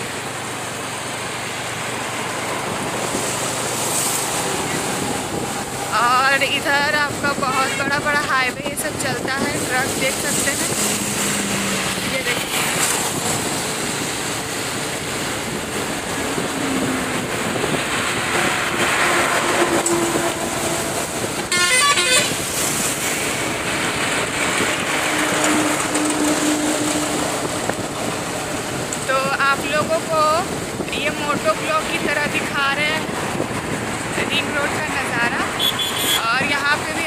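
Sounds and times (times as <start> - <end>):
wind and road noise: 0.0 - 37.0
vehicle horn honking: 21.5 - 22.4, 35.6 - 36.3.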